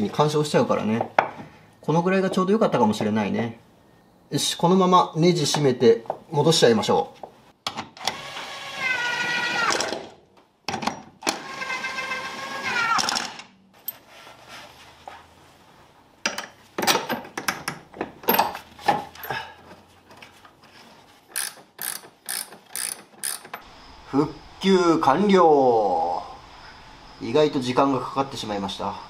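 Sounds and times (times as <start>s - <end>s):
cordless power tool whining: 8.0s - 10.0s, 11.3s - 13.2s
hand tools clicking and knocking: 16.2s - 19.8s, 21.3s - 23.7s.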